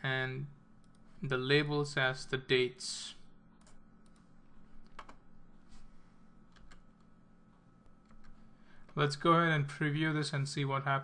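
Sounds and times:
faint steady hum: 0.0 - 11.0
computer key and mouse clicks: 4.8 - 5.2.

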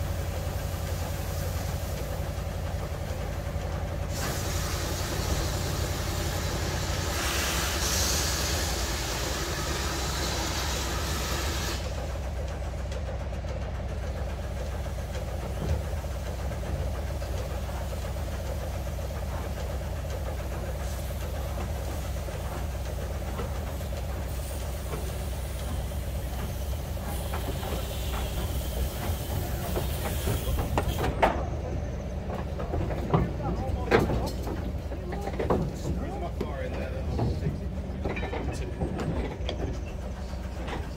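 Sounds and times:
steam hissing: 0.0 - 12.7, 14.3 - 31.2
locomotive clanks: 0.0 - 40.9.

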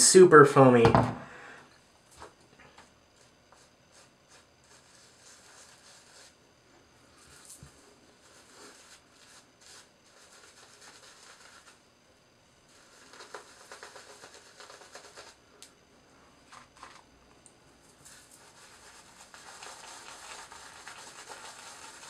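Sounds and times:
shaving brush scrubbing beard: 3.2 - 6.4, 7.1 - 11.8, 12.7 - 15.4, 18.0 - 22.0.

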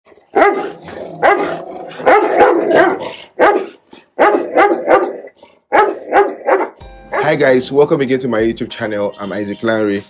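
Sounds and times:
large dogs barking: 0.1 - 7.4.

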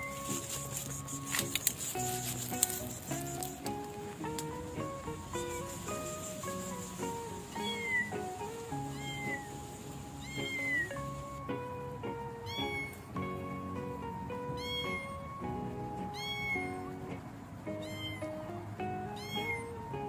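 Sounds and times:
background music: 0.0 - 20.0
kitten meowing: 5.3 - 11.3, 12.5 - 13.1, 14.6 - 15.3, 16.1 - 16.9, 17.7 - 18.5, 19.1 - 19.8.

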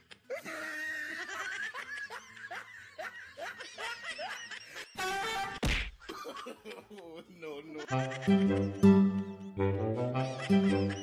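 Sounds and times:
snickering laughter: 0.0 - 5.0.

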